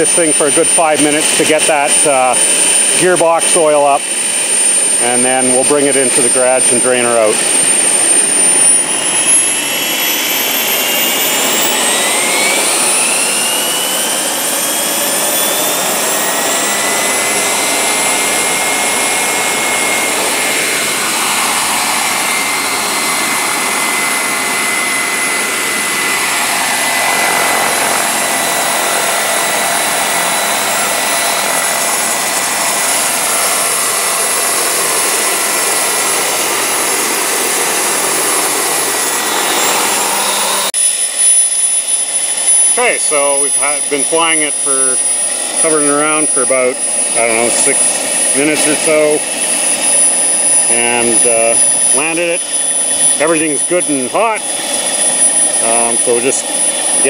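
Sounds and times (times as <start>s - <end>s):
gas turbine whine: 0.0s - 57.0s
rush of air: 17.5s - 31.0s.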